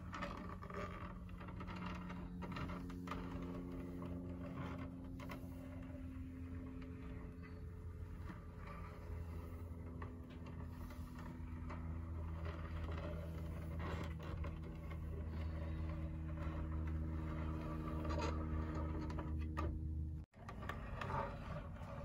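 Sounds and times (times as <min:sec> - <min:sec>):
faint scrapes and taps on wood: 0:00.0 - 0:22.0
low mechanical hum: 0:00.0 - 0:22.0.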